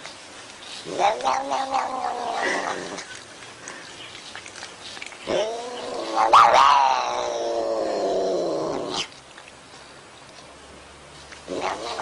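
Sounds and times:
cat yowling: 5.3 - 7.9.

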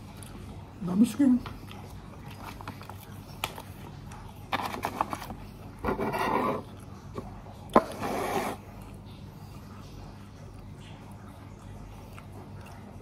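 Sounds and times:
scraping in a bowl: 4.5 - 6.7, 7.8 - 8.6.

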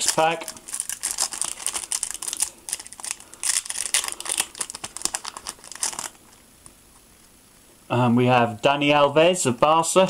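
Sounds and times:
foil wrapper crinkling and tearing: 0.0 - 6.4.

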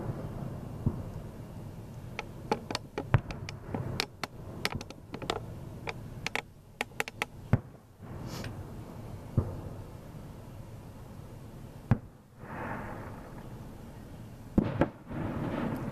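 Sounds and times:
fireworks bangs: 0.0 - 1.4, 2.1 - 5.4, 7.4 - 9.9, 11.9 - 13.5, 14.6 - 15.9
fireworks crackling: 0.0 - 10.8, 11.9 - 13.9, 14.6 - 15.9
short hiss: 8.1 - 8.6.

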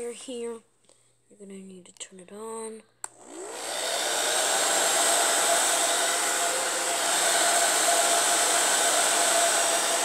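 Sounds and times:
hair dryer running: 3.1 - 10.0.

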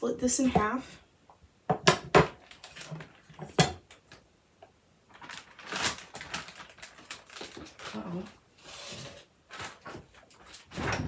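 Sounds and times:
plastic bag rustling: 2.4 - 3.4, 5.1 - 11.0.

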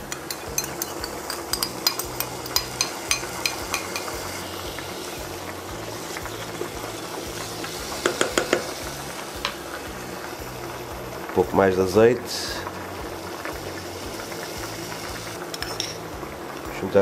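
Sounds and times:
ham and tomato sizzling in a pan: 0.0 - 17.0
metal spoon clinking against bowl: 0.1 - 4.2
wooden spatula knocking pan: 8.0 - 8.8.

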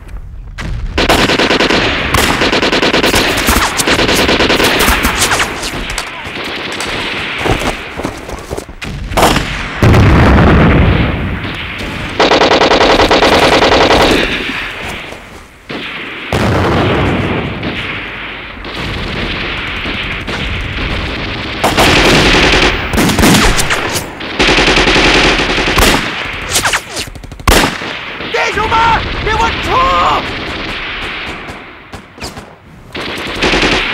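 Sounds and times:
machine-gun fire: 1.0 - 33.9
rifle shots: 1.0 - 33.9
deep boom: 8.8 - 12.0.

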